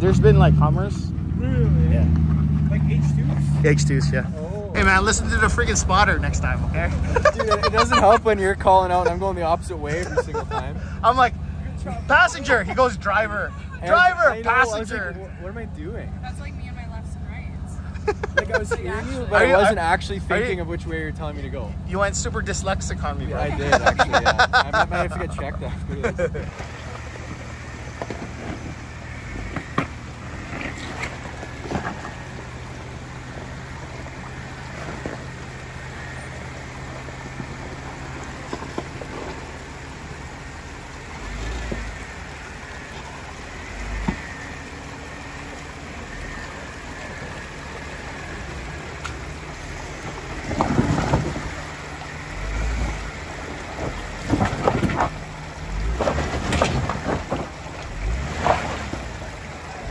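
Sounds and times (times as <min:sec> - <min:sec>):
engine running at low speed: 0:00.0 - 0:59.9.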